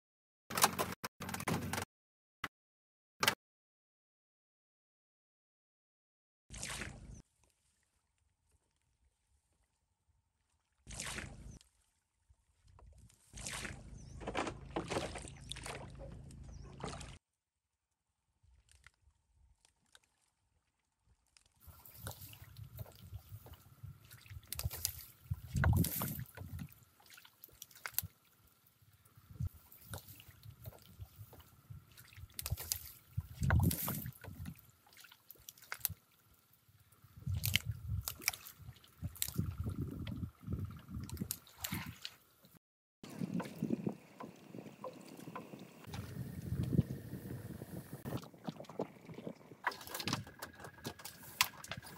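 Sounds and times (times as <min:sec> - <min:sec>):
water splashing from raft pole: 0:06.5 - 0:07.2, 0:10.8 - 0:11.8, 0:13.1 - 0:17.2, 0:21.6 - 0:28.8, 0:29.4 - 0:36.6, 0:37.2 - 0:40.3, 0:41.0 - 0:42.3, 0:43.0 - 0:47.0, 0:47.7 - 0:51.9
stems rustling and snapping: 0:37.4 - 0:38.5.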